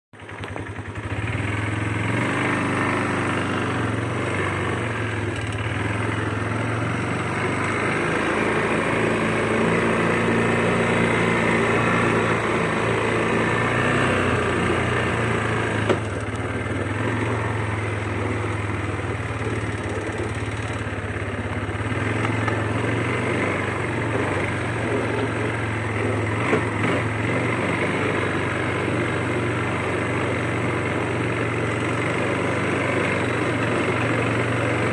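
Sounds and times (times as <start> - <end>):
quad bike engine running: 0.2 - 34.9.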